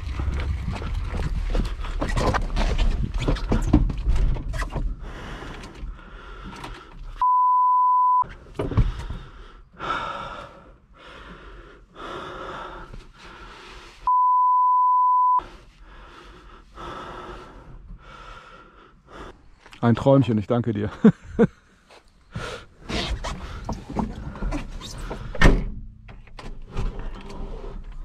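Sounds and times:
censor bleep: 0:07.2 - 0:08.3, 0:14.1 - 0:15.4.

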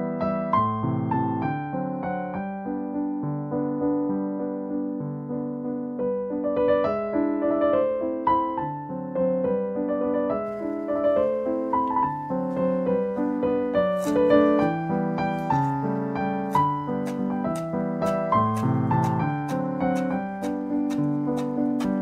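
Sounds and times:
piano music: 0:00.0 - 0:22.0
knife chopping on wooden board: 0:13.9 - 0:14.8, 0:15.4 - 0:22.0.

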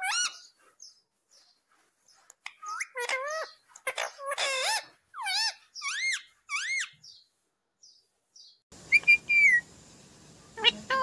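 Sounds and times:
parakeet calling: 0:00.0 - 0:01.0, 0:02.4 - 0:07.3, 0:08.4 - 0:09.7, 0:10.6 - 0:11.0.

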